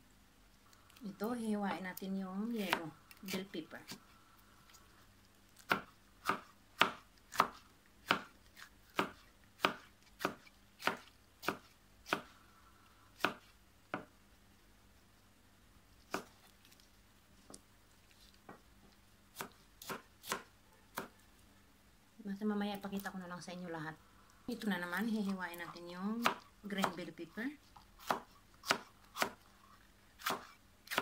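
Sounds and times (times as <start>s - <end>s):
knife chopping on cutting board: 5.6s - 8.3s, 8.9s - 12.3s, 13.2s - 14.1s, 28.0s - 29.4s, 30.2s - 31.0s.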